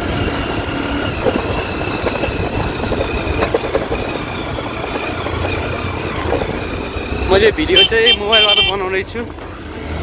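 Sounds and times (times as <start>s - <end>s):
motorcycle engine rumble: 0.0s - 10.0s
rattles and knocks from bumps: 1.0s - 7.2s.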